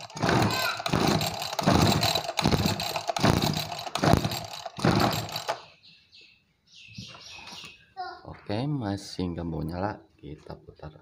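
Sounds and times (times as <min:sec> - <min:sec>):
recoil starter pulls cranking engine: 0:00.0 - 0:05.6.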